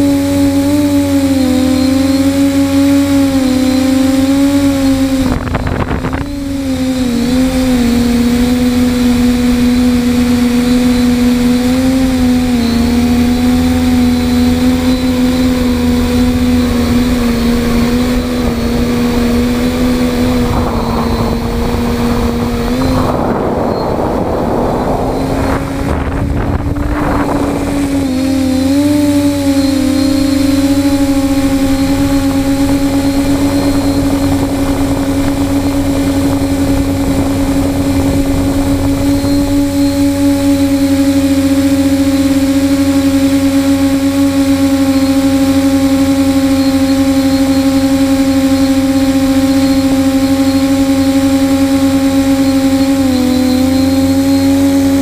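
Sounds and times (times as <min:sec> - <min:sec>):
drone motors and propellers humming: 0:00.0 - 0:55.0
rough rushing noise: 0:02.0 - 0:46.2.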